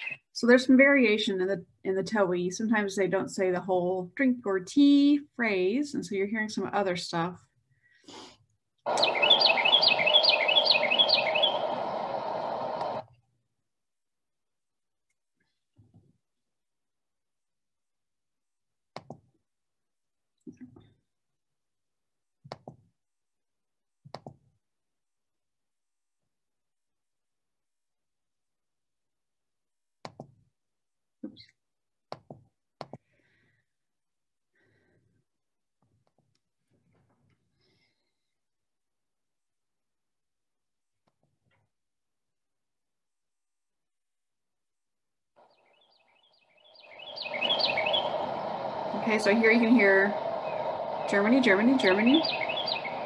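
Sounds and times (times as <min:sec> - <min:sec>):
wren singing whistled phrases: 0:00.0 - 0:00.3, 0:08.9 - 0:13.0, 0:45.5 - 0:53.0
steady rushing background noise: 0:08.9 - 0:13.0, 0:46.8 - 0:53.0
computer mouse clicks: 0:22.5 - 0:22.8, 0:30.0 - 0:30.4.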